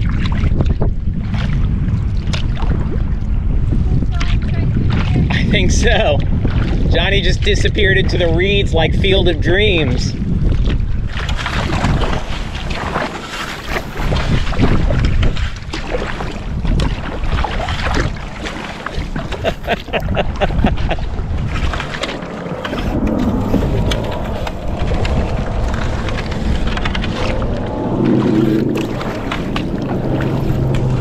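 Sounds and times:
wind rumble on microphone: 0.0s - 31.0s
grass scraping along kayak hull: 10.4s - 31.0s.

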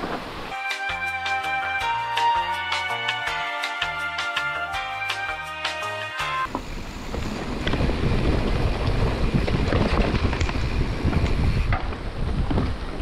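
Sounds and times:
bike clicks and rattles: 6.5s - 13.0s
tyres rumbling on dirt: 6.5s - 13.0s
wind buffeting microphone: 6.5s - 13.0s.

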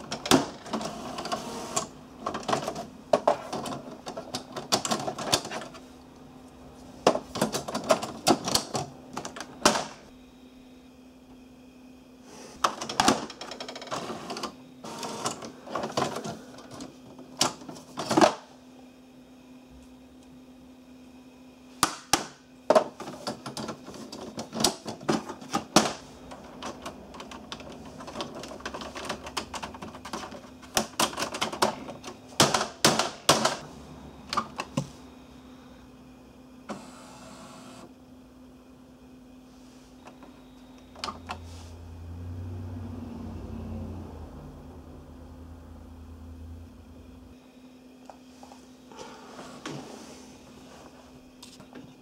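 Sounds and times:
printer mechanism clattering: 0.0s - 5.8s, 7.1s - 10.0s, 12.6s - 18.4s, 21.8s - 33.6s
steady low hum: 0.0s - 52.0s.

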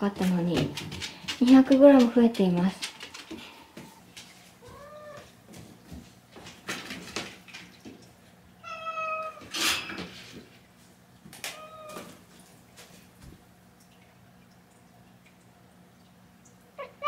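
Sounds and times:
soft knocks and rustles: 0.1s - 8.2s
cat meowing: 4.6s - 5.2s, 8.6s - 9.5s, 11.5s - 12.2s, 16.8s - 17.0s.

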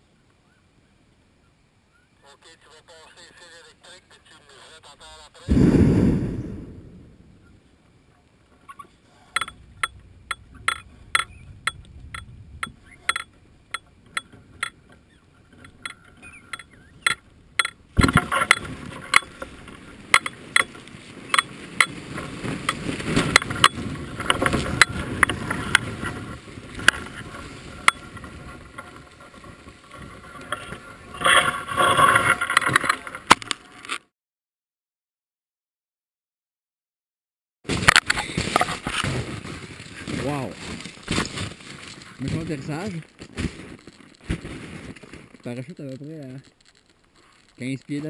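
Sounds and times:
basket scraping across snow: 20.9s - 32.3s, 37.7s - 45.4s.

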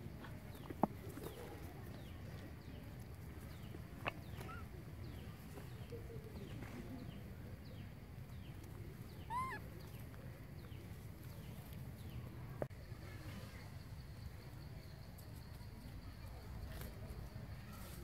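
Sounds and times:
faint high chirps: 4.3s - 10.8s
baby monkey squealing: 9.2s - 9.7s.

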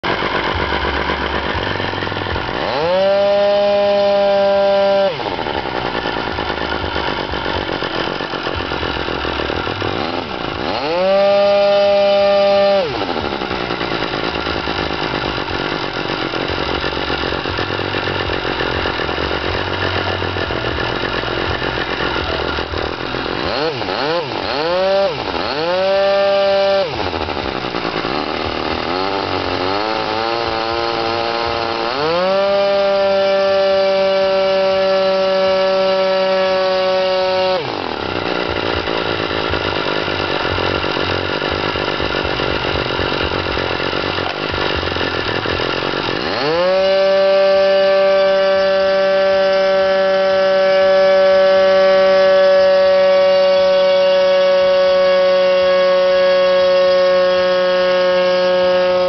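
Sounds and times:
model aircraft engine revving: 0.0s - 59.0s.

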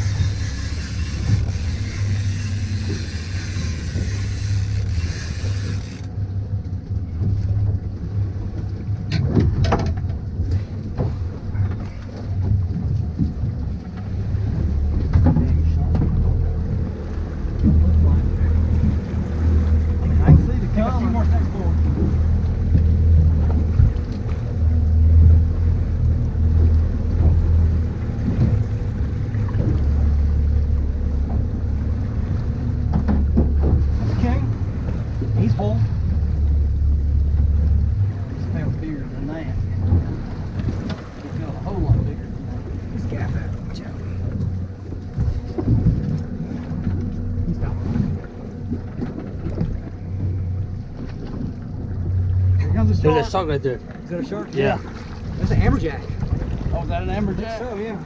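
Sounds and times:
boat engine humming: 0.0s - 58.0s
wind buffeting microphone: 54.7s - 58.0s.

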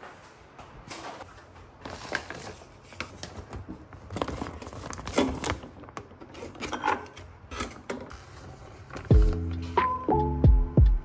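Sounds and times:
plastic bags crinkling: 1.8s - 7.0s.

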